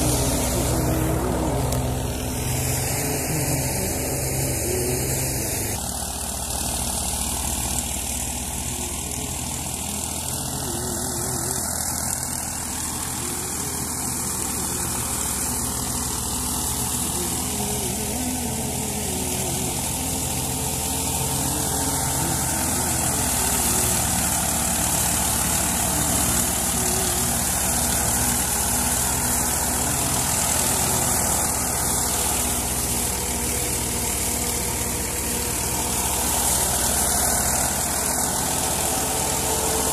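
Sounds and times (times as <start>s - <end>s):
tractor-powered thresher running: 0.0s - 39.9s.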